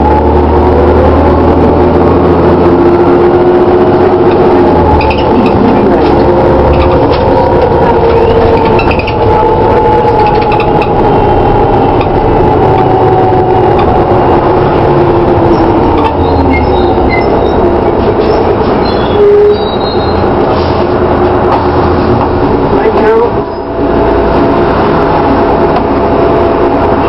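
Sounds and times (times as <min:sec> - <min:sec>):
gearbox whine: 0:00.0 - 0:20.4
bus engine running: 0:00.0 - 0:27.0.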